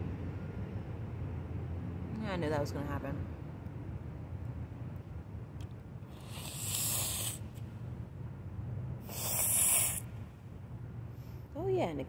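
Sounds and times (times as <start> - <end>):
person blowing nose: 6.1 - 7.4, 9.1 - 10.1.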